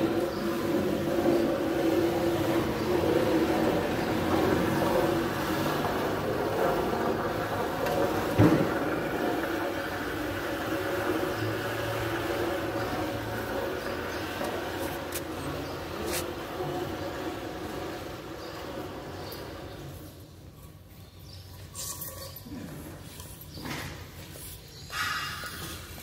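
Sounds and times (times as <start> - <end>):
machinery humming: 0.0 - 20.4.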